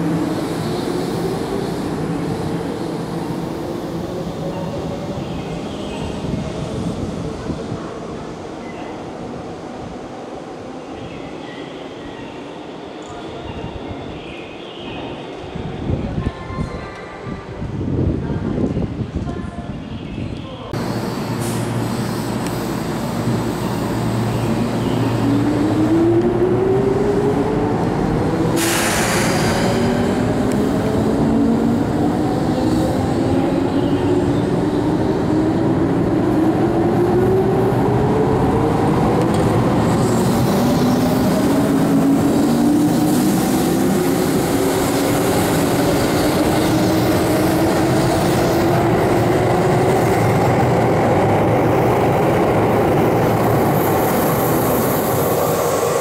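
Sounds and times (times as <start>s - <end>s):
wheels rumbling on rail: 20.8s - 56.0s.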